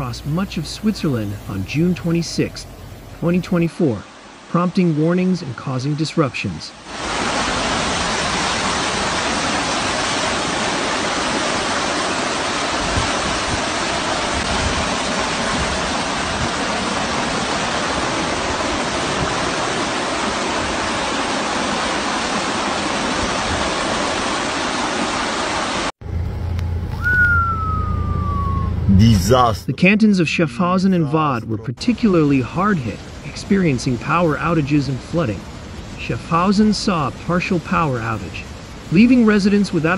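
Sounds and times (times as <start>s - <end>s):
floodwater rushing: 0.0s - 25.9s, 30.3s - 39.9s
slowly falling tone: 26.0s - 29.3s
low hum inside car: 26.0s - 31.8s.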